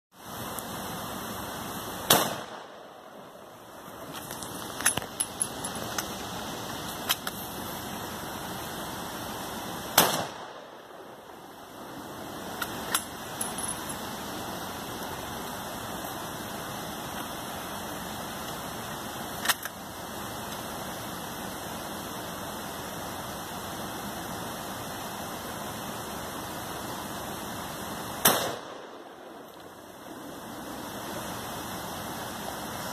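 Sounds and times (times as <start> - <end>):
rifle shots: 2.1 - 2.8, 10.0 - 10.6, 28.2 - 28.8.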